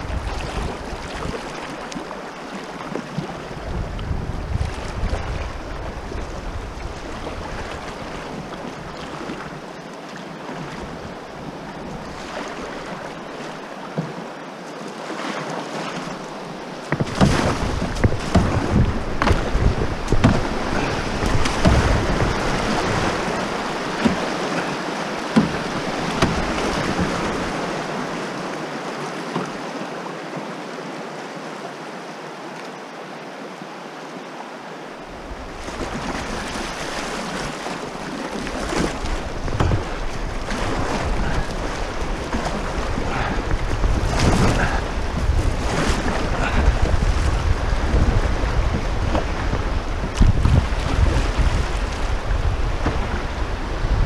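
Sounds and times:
wind rumbling on microphone: 0:00.0 - 0:02.2, 0:03.0 - 0:09.7, 0:16.0 - 0:28.5, 0:35.0 - 0:54.0
river water rushing and splashing: 0:00.0 - 0:54.0.

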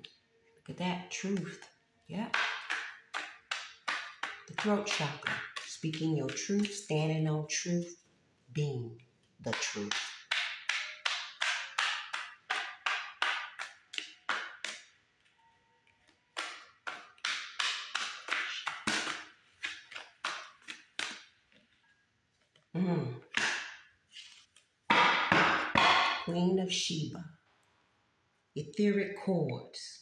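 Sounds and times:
cards being shuffled: 0:09.5 - 0:15.3, 0:16.0 - 0:21.8, 0:23.3 - 0:24.7.

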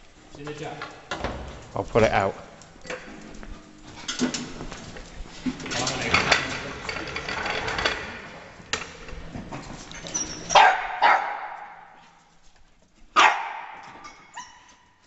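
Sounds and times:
dog yapping and whining: 0:10.0 - 0:11.6, 0:13.2 - 0:15.0.

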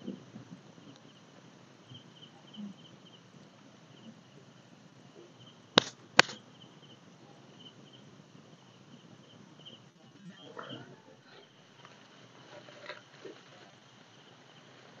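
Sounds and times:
crickets chirping: 0:00.0 - 0:15.0
sharp cracks: 0:05.8 - 0:06.4.

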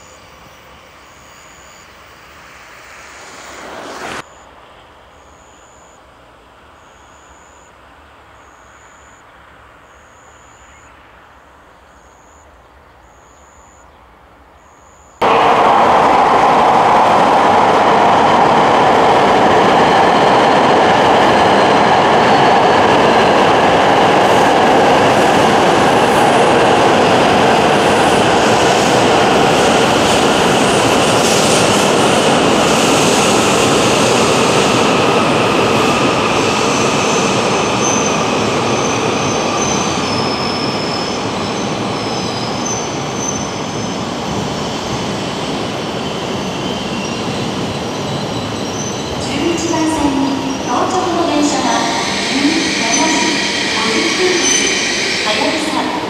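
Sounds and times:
train running noise: 0:00.0 - 0:56.0
high-pitched squeals: 0:35.8 - 0:56.0.

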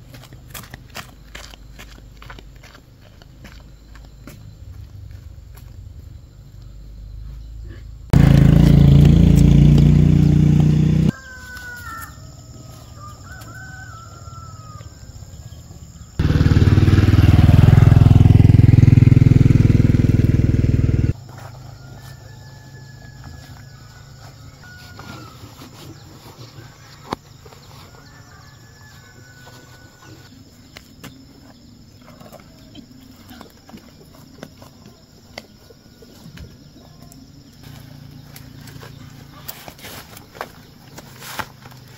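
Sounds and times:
motor running loudly: 0:08.2 - 0:11.1
birds calling: 0:09.4 - 0:18.1, 0:23.3 - 0:41.9.

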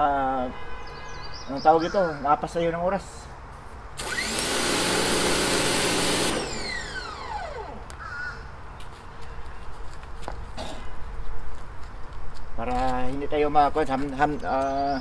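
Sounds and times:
pressure washer motor whine: 0:04.0 - 0:07.9.

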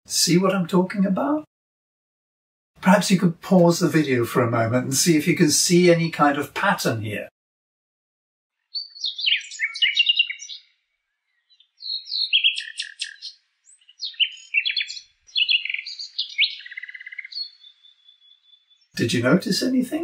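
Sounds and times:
nightingale singing: 0:08.6 - 0:19.0.

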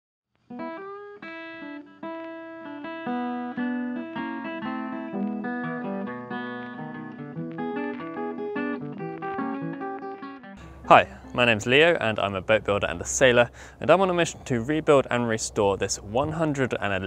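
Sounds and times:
acoustic guitar plucked notes: 0:00.5 - 0:13.7.

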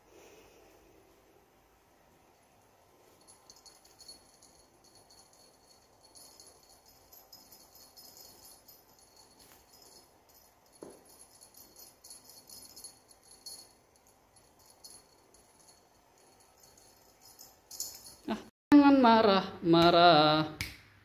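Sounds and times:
small bell jingling: 0:03.0 - 0:18.5.

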